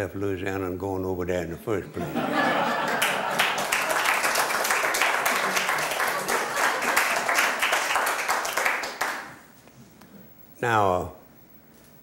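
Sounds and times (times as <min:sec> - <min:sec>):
audience applause: 0:02.3 - 0:09.4.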